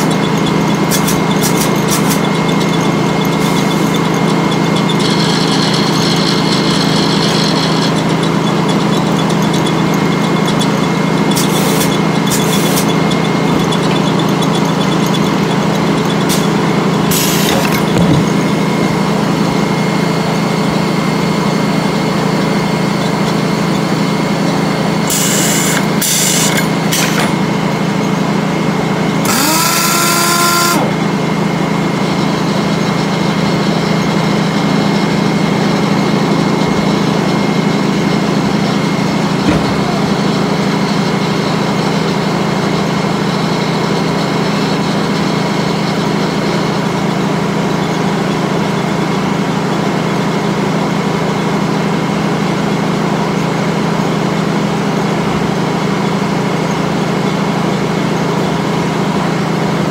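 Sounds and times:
saw blade spinning: 0.0 - 18.7, 29.2 - 31.0
machinery humming: 0.0 - 59.9
horn-like rising tone: 29.2 - 31.0.

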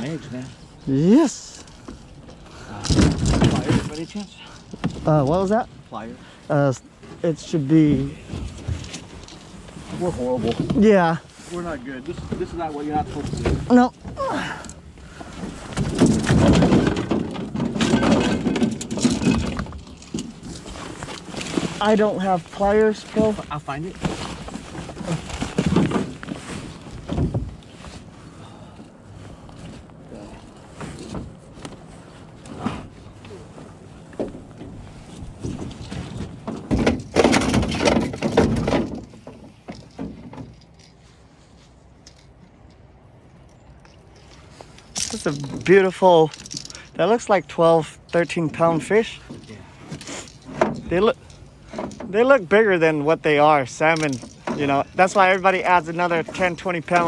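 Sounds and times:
gear clattering and rustling: 1.3 - 28.2, 29.4 - 47.0, 48.0 - 52.4, 53.7 - 57.0
knocks and scrapes on boat floor: 2.9 - 5.2, 7.8 - 14.2, 15.2 - 28.2, 29.5 - 41.8.

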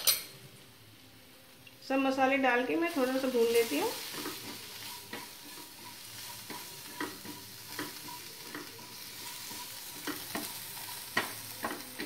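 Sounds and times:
food sizzling in oil: 1.8 - 12.0
spatula scraping pan: 3.0 - 12.0.

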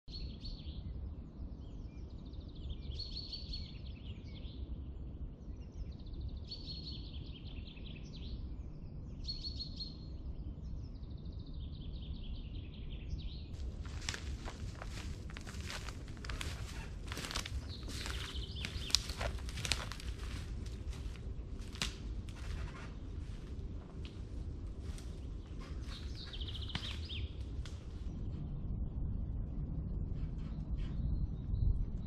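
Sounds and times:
songbird singing: 0.1 - 28.6
low steady rumble: 10.1 - 32.0
footsteps crunching through dry leaves: 13.6 - 27.6.

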